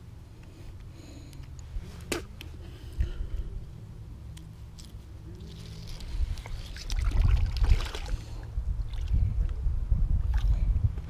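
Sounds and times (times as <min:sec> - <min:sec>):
wind rumble on microphone: 0:05.8 - 0:11.0.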